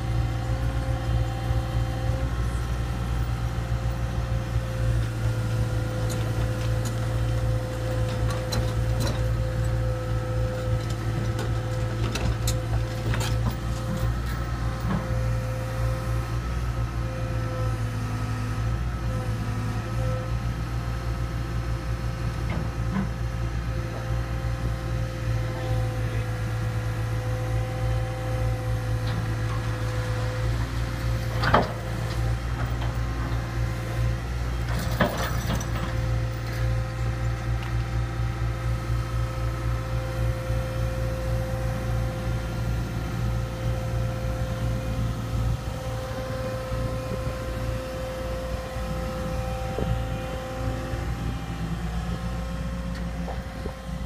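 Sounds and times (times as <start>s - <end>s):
excavator diesel engine running: 0.0s - 54.0s
hydraulic whine: 41.3s - 54.0s.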